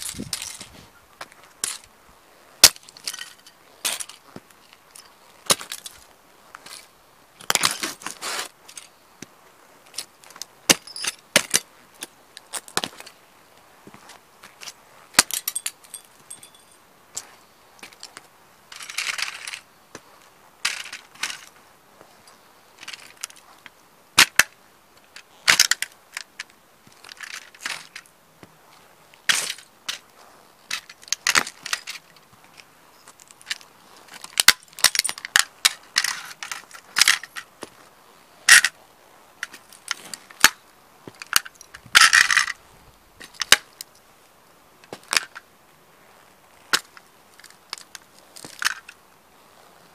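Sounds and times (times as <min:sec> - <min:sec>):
crunching grinds: 0:00.0 - 0:44.2, 0:44.8 - 0:49.9
boots trampling toy cars: 0:05.4 - 0:09.3, 0:09.9 - 0:13.2, 0:13.8 - 0:22.2, 0:22.8 - 0:37.9, 0:39.4 - 0:42.6, 0:43.2 - 0:43.9, 0:44.8 - 0:45.5, 0:46.6 - 0:49.9.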